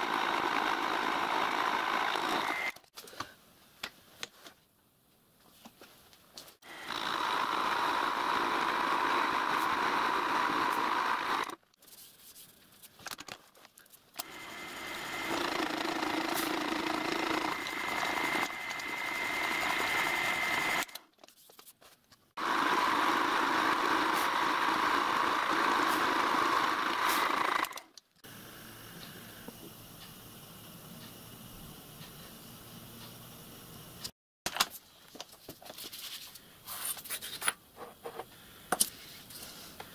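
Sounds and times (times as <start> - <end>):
milling machine cutting metal: 0.0 - 2.8, 14.2 - 21.0.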